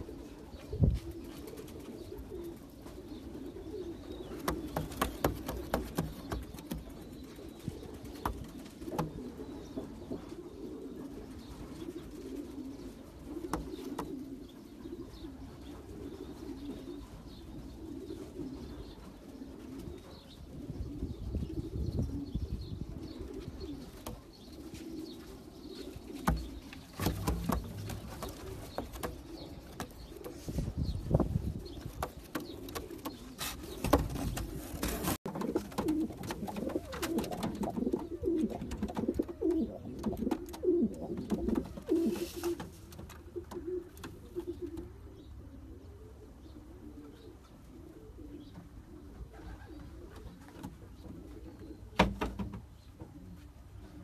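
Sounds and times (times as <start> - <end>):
pigeons cooing: 0.0 - 52.1.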